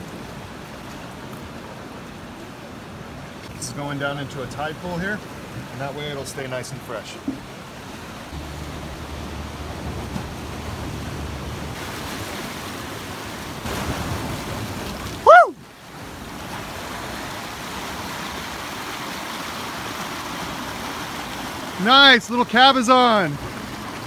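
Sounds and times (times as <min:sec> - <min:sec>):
ocean surf over rocks: 0:00.0 - 0:24.0
loud rising and falling call: 0:15.2 - 0:15.6.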